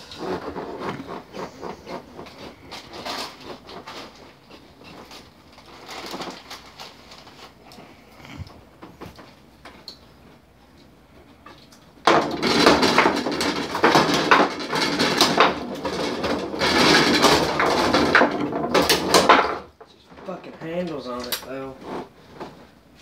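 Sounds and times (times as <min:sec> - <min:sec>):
foosball players striking ball: 0:12.1 - 0:19.7.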